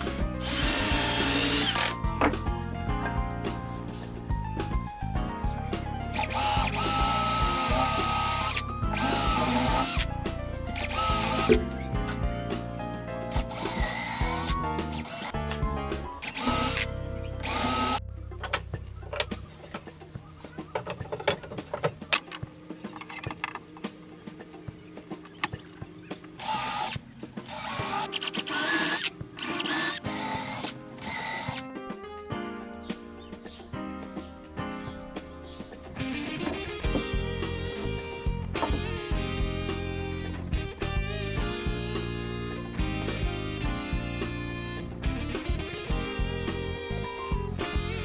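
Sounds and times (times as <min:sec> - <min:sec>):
cordless drill motor whining: 0:00.0 - 0:02.0, 0:06.2 - 0:10.1, 0:10.8 - 0:11.6, 0:13.4 - 0:15.3, 0:16.2 - 0:18.0, 0:26.4 - 0:31.6.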